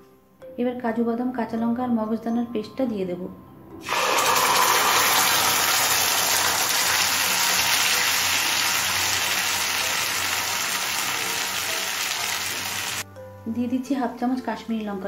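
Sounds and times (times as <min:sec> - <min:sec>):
paste sizzling in oil: 0:03.8 - 0:13.0.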